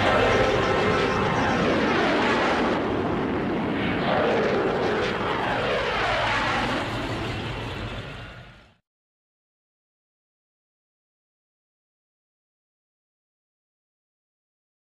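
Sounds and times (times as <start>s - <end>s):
aircraft engine roar overhead: 0.0s - 8.8s.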